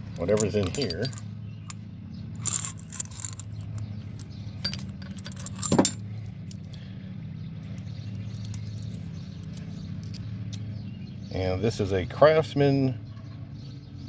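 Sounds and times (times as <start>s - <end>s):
steady low hum: 0.0s - 12.1s
metal tool pieces clinking: 0.2s - 1.8s, 2.4s - 6.7s, 7.8s - 10.2s.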